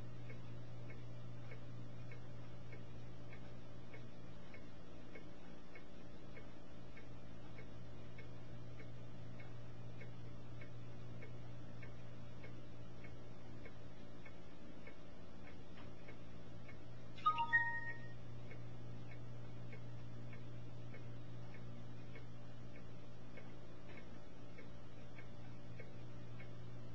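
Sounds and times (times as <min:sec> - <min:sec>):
faint ticks: 0:00.0 - 0:26.9
steady low hum: 0:00.0 - 0:26.9.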